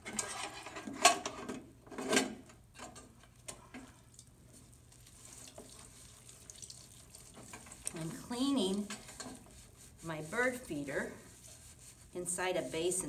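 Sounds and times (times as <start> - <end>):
sponge scrubbing metal: 7.2 - 13.0.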